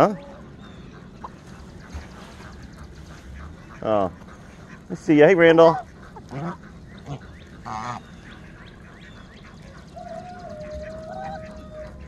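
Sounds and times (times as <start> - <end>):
goose honking: 0.0 - 12.0
poultry calling: 0.0 - 12.0.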